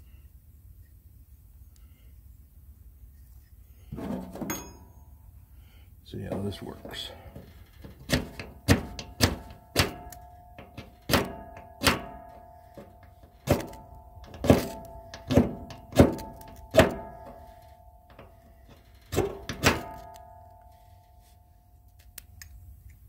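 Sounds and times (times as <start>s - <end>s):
flint and steel striking: 3.9s - 5.0s
steel ringing tone: 4.4s - 5.3s.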